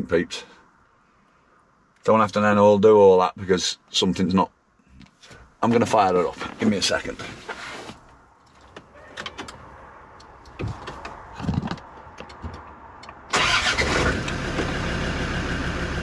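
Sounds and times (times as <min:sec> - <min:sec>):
car engine starting and idling: 0:08.5 - 0:16.0
light clicks and knocks: 0:10.2 - 0:13.2.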